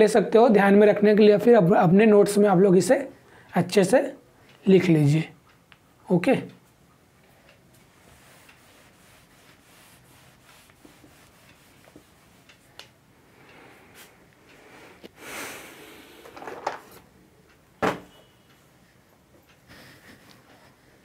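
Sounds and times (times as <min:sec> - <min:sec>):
duster rubbing whiteboard: 0:08.0 - 0:12.8.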